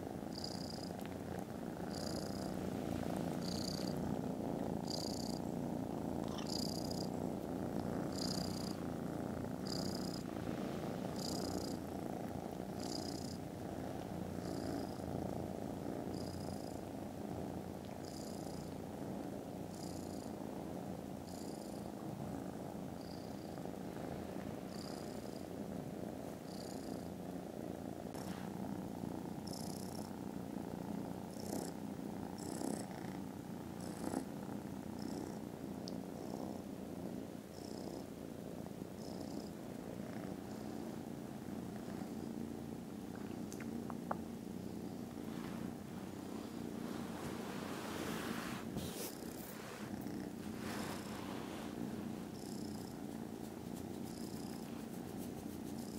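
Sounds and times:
faint hiss: 0.0s - 55.9s
kittens purring loudly: 0.0s - 55.9s.

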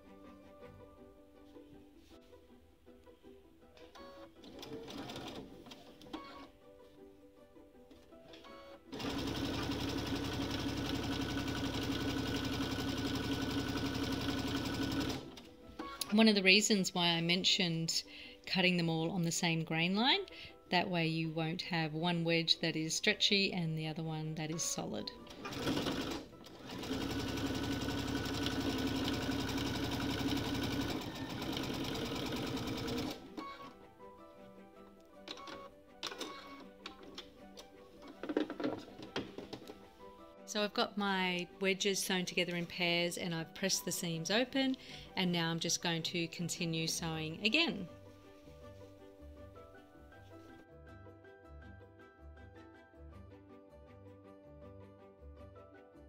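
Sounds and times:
soft background music: 0.0s - 56.0s
electric sewing machine running: 8.9s - 15.4s, 25.3s - 33.4s.

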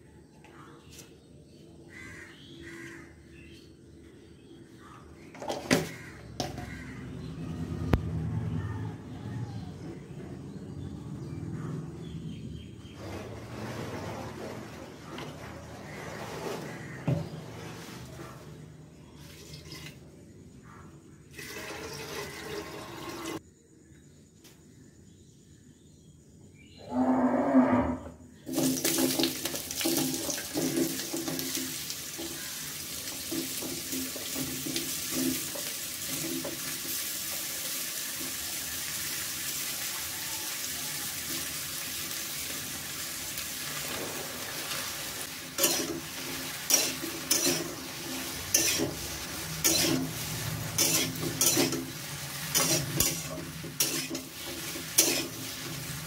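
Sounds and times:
metal spatula scraping pan: 13.0s - 18.4s, 43.9s - 56.0s
vegetables clattering into metal pan: 28.5s - 32.4s, 33.2s - 36.9s, 43.8s - 56.0s
vegetables sizzling in oil: 28.5s - 56.0s.

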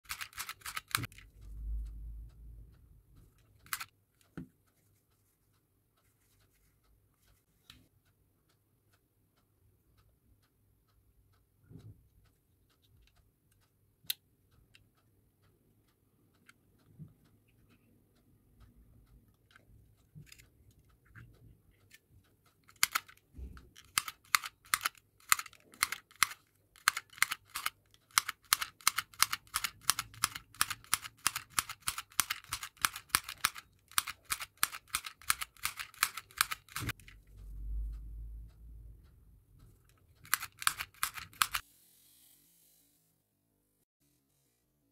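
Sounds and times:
handheld sewing machine clicking: 0.0s - 1.3s, 3.6s - 4.3s, 22.6s - 37.2s, 39.9s - 41.7s.

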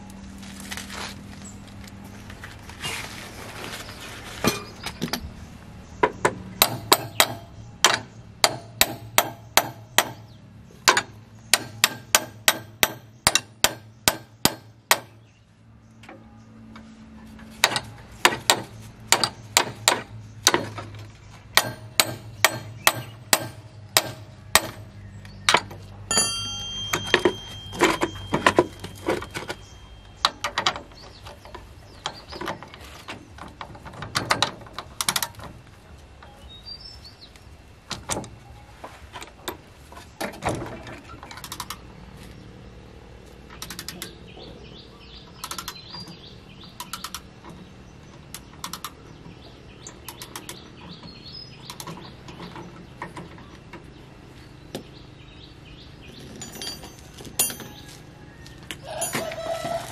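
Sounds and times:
hammer striking steel: 6.6s - 10.3s, 10.9s - 15.2s, 21.6s - 24.9s, 26.1s - 29.5s.

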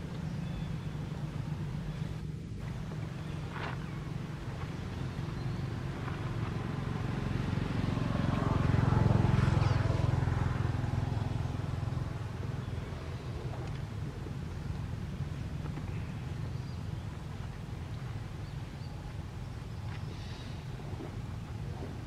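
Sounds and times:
vehicle engine passing by: 0.0s - 18.5s.

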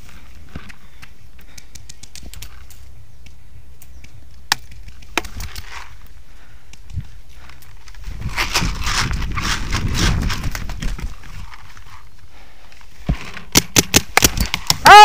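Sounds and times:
paintball markers firing: 13.5s - 14.8s.

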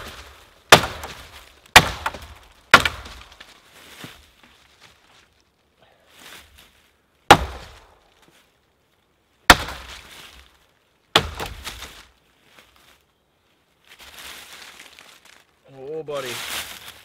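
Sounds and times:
hatchet chopping wood: 0.0s - 3.4s, 7.3s - 7.8s, 9.5s - 9.9s, 11.1s - 11.9s
wood splintering crackle: 0.0s - 3.7s, 7.3s - 8.3s, 9.5s - 12.2s.

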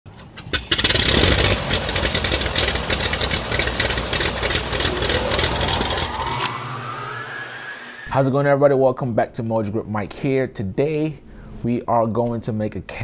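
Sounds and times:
airplane piston engines idling: 1.8s - 6.5s.

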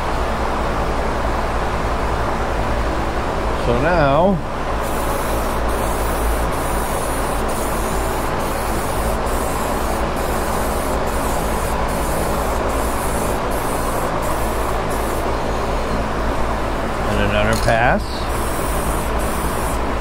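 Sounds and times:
steady low hum: 0.0s - 20.0s
spray-paint can hissing: 4.8s - 16.0s, 18.2s - 20.0s.

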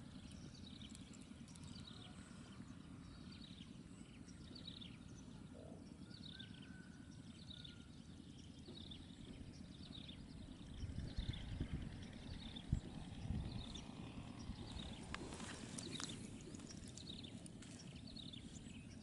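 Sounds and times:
birds whistling: 9.0s - 19.0s
low rumble: 9.6s - 19.0s.

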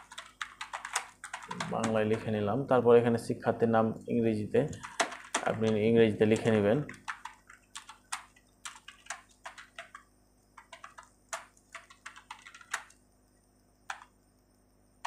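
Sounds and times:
keyboard typing: 0.0s - 2.4s, 4.6s - 13.0s, 13.8s - 14.2s.

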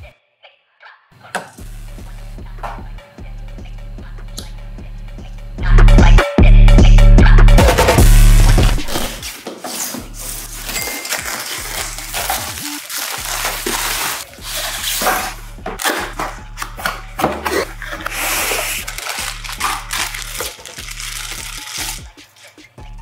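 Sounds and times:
plastic bags crinkling: 8.6s - 22.5s.

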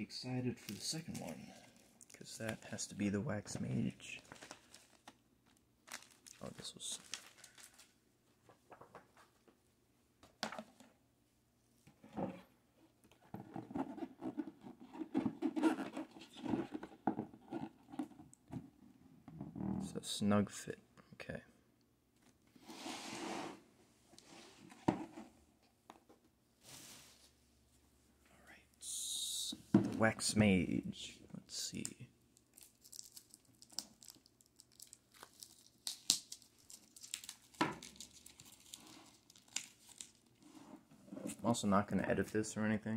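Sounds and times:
plastic wrap crinkling: 4.1s - 8.0s, 32.4s - 40.4s
cardboard lid scraping: 22.6s - 23.6s.

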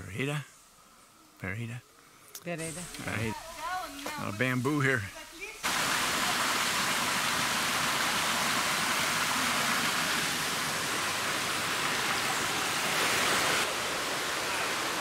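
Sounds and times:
river rushing over boulders: 5.6s - 15.0s.

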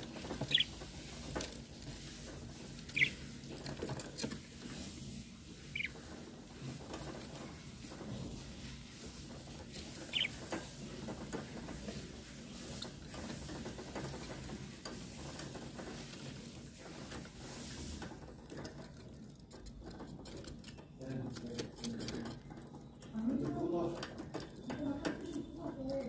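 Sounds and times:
birds scratching and rustling: 0.0s - 26.0s
short high bird chirp: 2.9s - 3.2s.

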